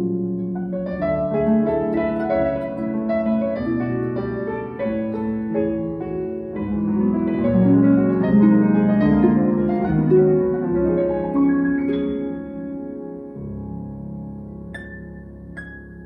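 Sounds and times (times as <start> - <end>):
grand piano playing: 0.0 - 16.0
harp playing: 0.4 - 16.0.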